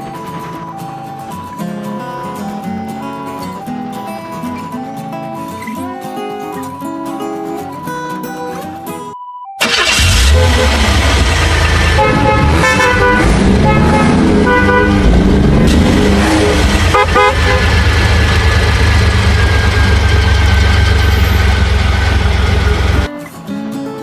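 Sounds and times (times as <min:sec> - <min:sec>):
car horn honks: 0:09.6 - 0:11.1, 0:11.7 - 0:18.4
engine rumble: 0:09.6 - 0:23.1.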